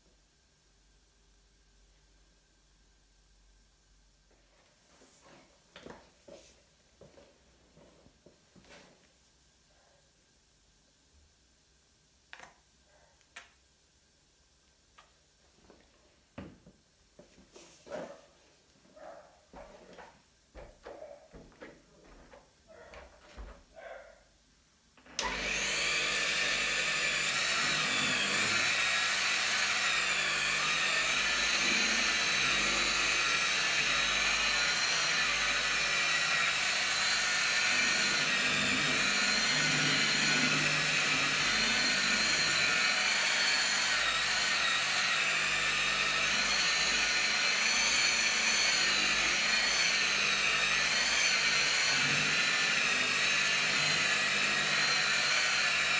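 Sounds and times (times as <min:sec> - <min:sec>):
rotary polisher whining: 0:25.0 - 0:55.9.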